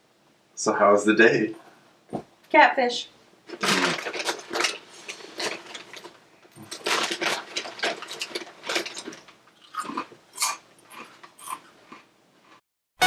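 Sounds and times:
plastic snack bag crinkling: 0:03.5 - 0:11.6
crunchy snack being chewed: 0:03.5 - 0:12.6.

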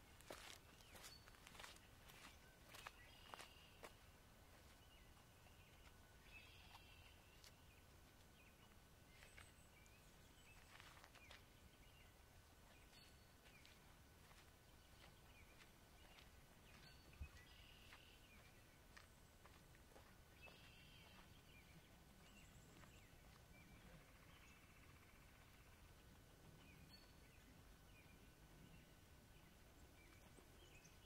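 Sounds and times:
distant bird calls: 0:00.2 - 0:07.9, 0:12.8 - 0:28.1.

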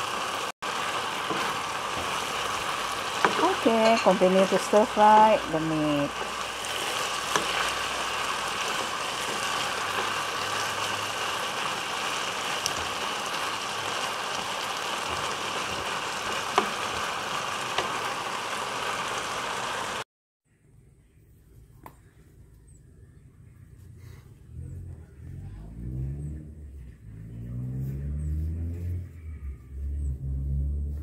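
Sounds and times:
meat sizzling in a pan: 0:00.0 - 0:20.0.

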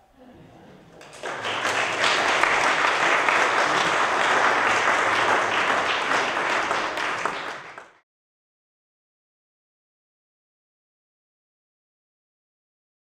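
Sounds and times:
audience applauding: 0:01.0 - 0:08.0.

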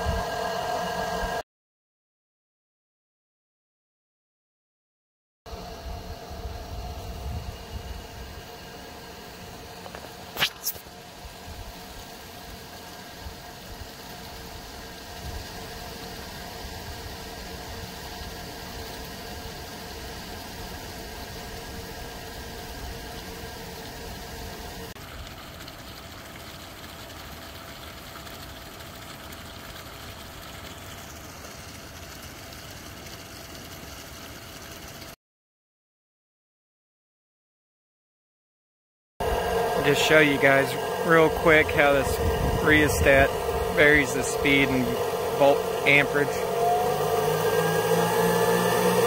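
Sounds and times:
steady hum: 0:05.5 - 0:25.0, 0:39.2 - 0:49.0
water pouring into a stream: 0:09.6 - 0:35.2, 0:39.2 - 0:49.0.

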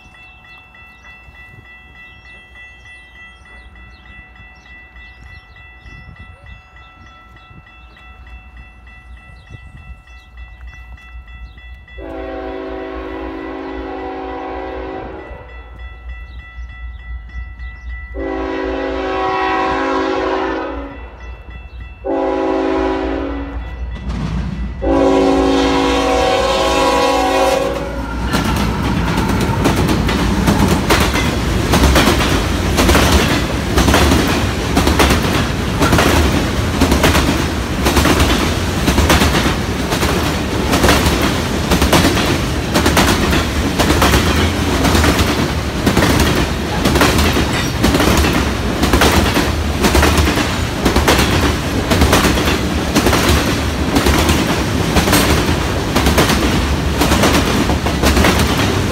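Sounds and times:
train rumble: 0:00.0 - 0:58.9
locomotive air horn: 0:12.0 - 0:15.7, 0:18.2 - 0:21.1, 0:22.0 - 0:23.6, 0:24.8 - 0:29.7
train wheels clacking over rail joints: 0:27.9 - 0:58.9.

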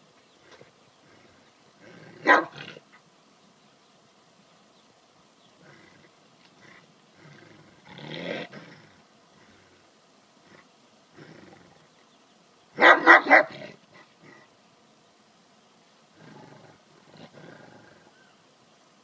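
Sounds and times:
large dog barking: 0:02.2 - 0:02.6, 0:12.8 - 0:13.8
dog low vocal sounds: 0:16.2 - 0:18.3.

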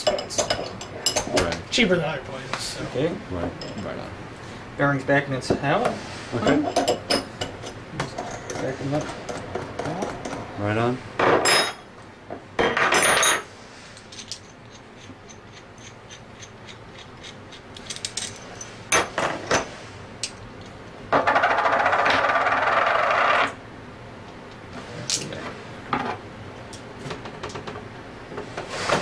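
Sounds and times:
metal parts clinking on bench: 0:17.8 - 0:19.1.

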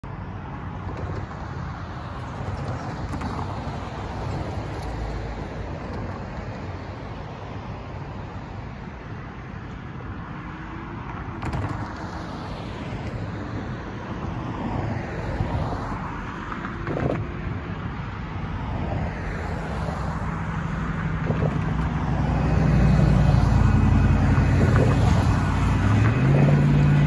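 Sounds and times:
cars driving past: 0:00.2 - 0:27.0.

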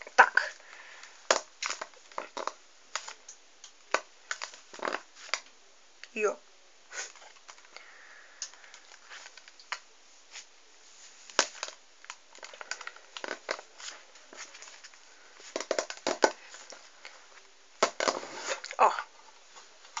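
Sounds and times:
plastic packaging crinkling: 0:00.2 - 0:03.2, 0:11.2 - 0:17.1.

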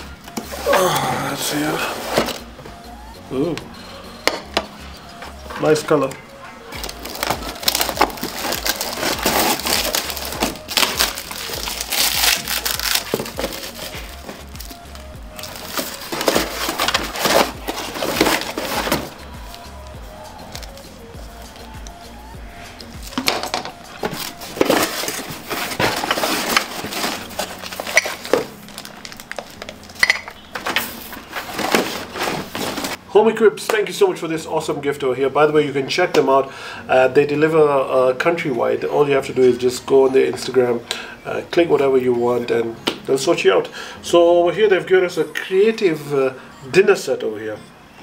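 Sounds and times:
cardboard packaging rustling: 0:01.5 - 0:02.5, 0:06.7 - 0:20.9, 0:23.0 - 0:33.0
plastic wrapping crinkling: 0:06.7 - 0:20.9, 0:23.0 - 0:33.0.

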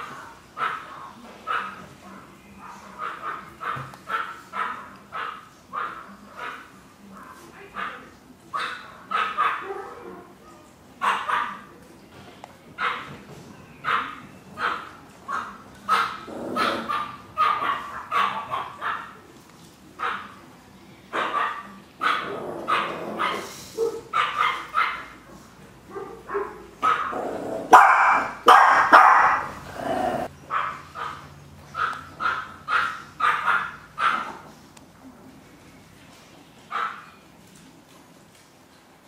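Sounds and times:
small dogs yapping: 0:13.8 - 0:19.2, 0:21.2 - 0:25.2, 0:26.0 - 0:34.5.

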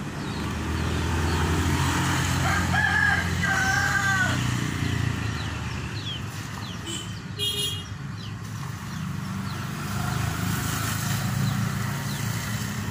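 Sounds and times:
vehicle engine humming: 0:00.0 - 0:12.9.

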